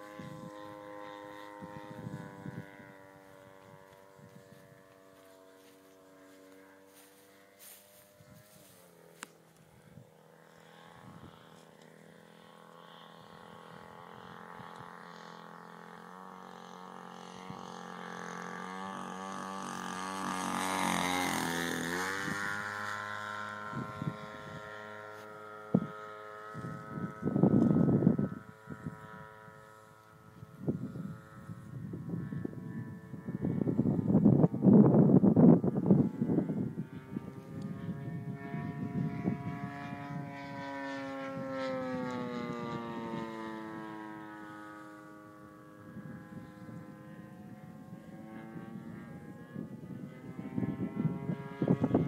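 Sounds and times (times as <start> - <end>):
model airplane engine flying past: 0.0 - 52.0
wind rumbling on microphone: 0.0 - 52.0.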